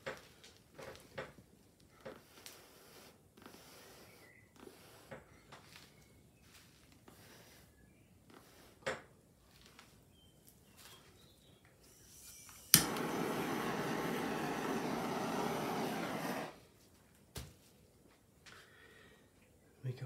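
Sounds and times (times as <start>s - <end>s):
blower switch click: 12.7s - 13.5s
electric air blower blowing: 12.7s - 16.6s.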